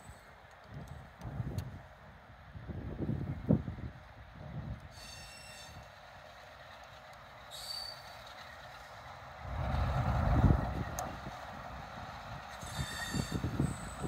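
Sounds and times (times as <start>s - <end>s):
distant train rolling: 0.0s - 14.0s
wheel squeal: 5.0s - 5.8s, 7.5s - 8.2s, 12.6s - 14.0s.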